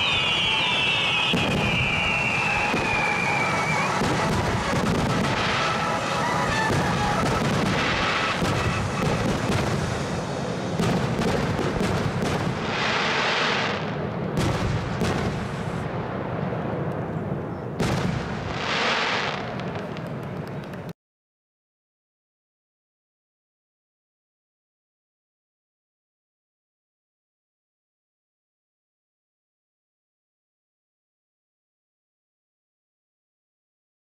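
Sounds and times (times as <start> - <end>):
falling firework whistles: 0.0 - 15.8, 17.5 - 20.1
firework bangs and crackling: 0.0 - 20.9.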